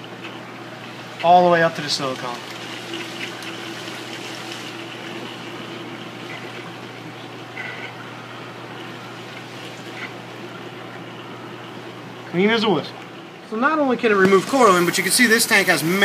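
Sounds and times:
aquarium pump hum: 0.0 - 16.0
water rushing: 0.6 - 12.1.

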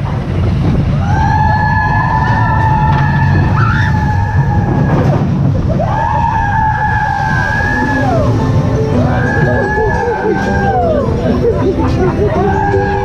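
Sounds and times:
roller coaster rumbling on track: 0.0 - 13.0
rider screaming: 1.0 - 8.4, 12.3 - 13.0.

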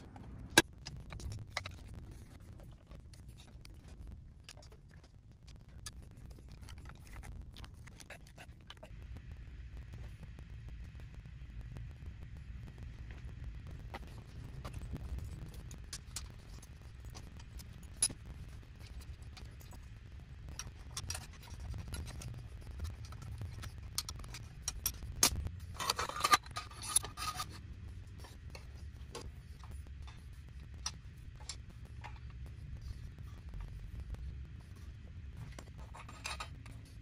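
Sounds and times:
metal tools clicking and tapping: 20.5 - 32.5, 35.4 - 37.0
rasping metal scrape: 25.1 - 27.6.

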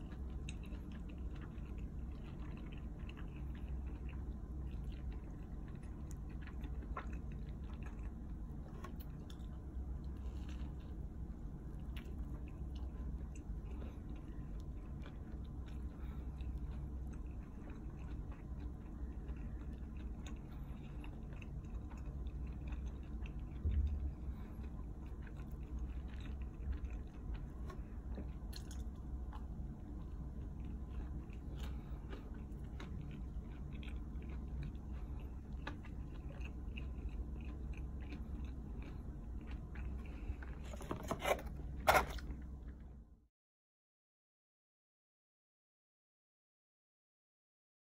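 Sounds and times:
person chewing pizza crust: 0.0 - 43.1
steady low hum: 0.0 - 43.3
low thump: 23.6 - 24.1.

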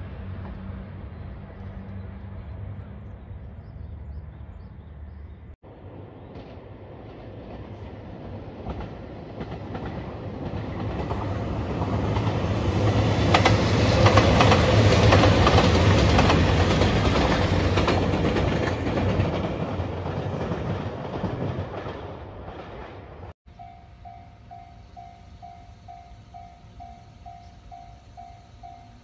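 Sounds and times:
diesel train engine rumble: 0.0 - 29.0
wheels clacking over rail joints: 6.4 - 23.3.

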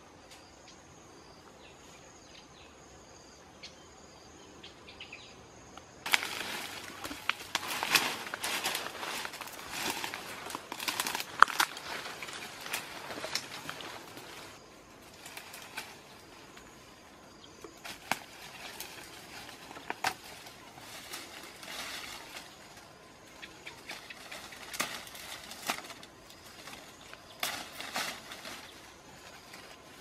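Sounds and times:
leaves and twigs rustling: 5.8 - 30.0
twigs snapping: 6.0 - 16.7, 17.6 - 30.0.

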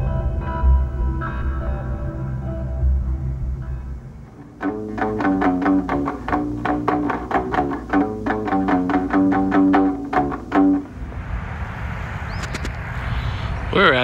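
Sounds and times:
ukulele picked melody: 4.6 - 10.9.

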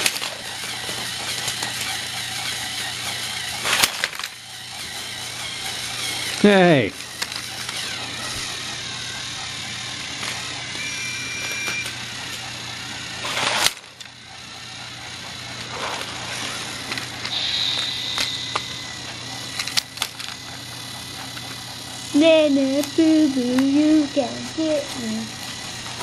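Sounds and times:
toy train motor whirring: 0.0 - 26.0.

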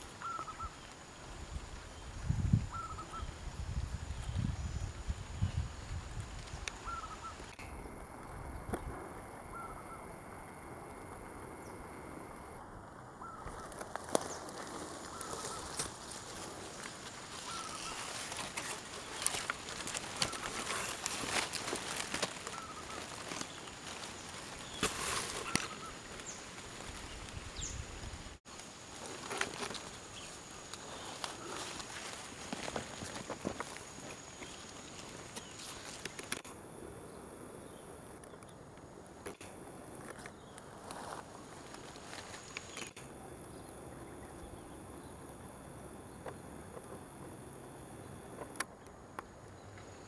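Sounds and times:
leaves rustling: 0.0 - 48.8
faint high insect hum: 0.0 - 50.0
falling bird chirps: 0.2 - 1.0, 2.7 - 3.4, 6.8 - 7.8, 16.7 - 27.9.

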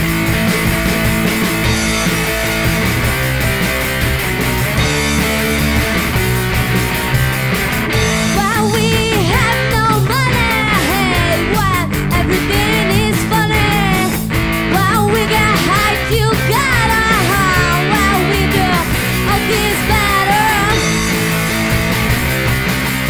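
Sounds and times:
bass guitar: 0.0 - 23.0
distorted electric guitar: 0.0 - 23.0
drums keeping a steady beat: 0.0 - 23.0
woman singing: 8.3 - 20.9.

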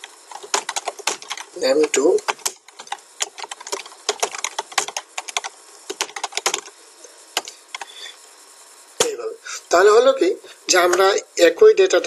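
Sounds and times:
typing on computer keyboard: 0.0 - 6.7.

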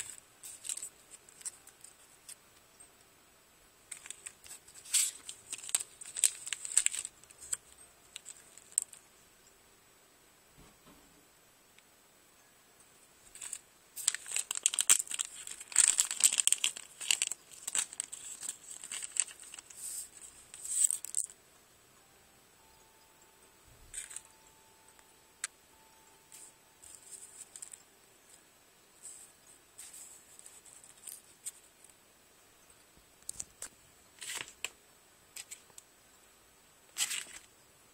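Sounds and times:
paper cutouts rustling: 0.0 - 2.4, 3.9 - 9.1, 13.3 - 21.4, 23.9 - 24.4, 26.3 - 28.4, 29.0 - 31.9, 33.2 - 34.8, 36.9 - 37.5
plastic bag crinkling: 3.9 - 9.0, 13.3 - 21.4.

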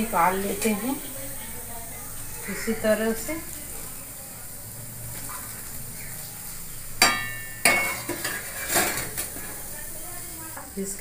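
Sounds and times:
faint oil sizzle: 0.0 - 11.0
wire skimmer clanking on cookware: 7.0 - 9.6.

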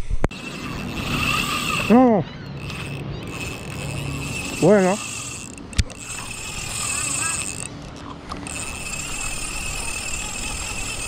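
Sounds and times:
spinning reel gears whirring: 0.3 - 11.0
sharp click: 5.4 - 6.2.

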